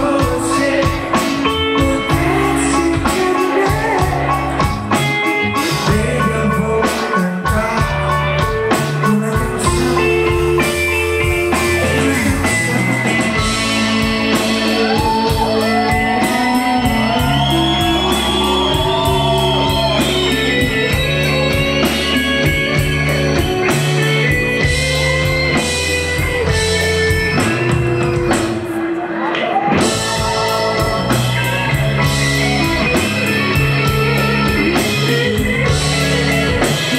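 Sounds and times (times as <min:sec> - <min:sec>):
live pop band playing: 0:00.0 - 0:36.9
wavering lead melody: 0:09.3 - 0:29.1, 0:29.8 - 0:36.9.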